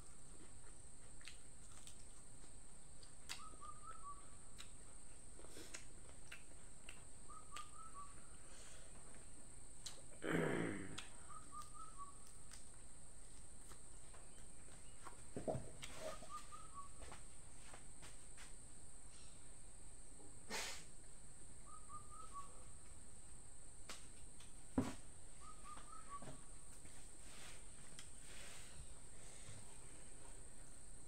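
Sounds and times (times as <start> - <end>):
bird chirping: 7.2 - 8.4, 11.2 - 12.3, 15.9 - 17.0, 21.6 - 22.7, 25.3 - 26.5
steady high hiss: 17.0 - 21.7.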